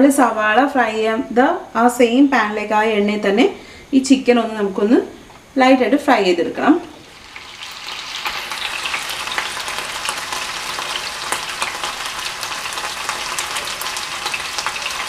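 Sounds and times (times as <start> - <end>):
hot oil sizzling and crackling: 6.8 - 15.0.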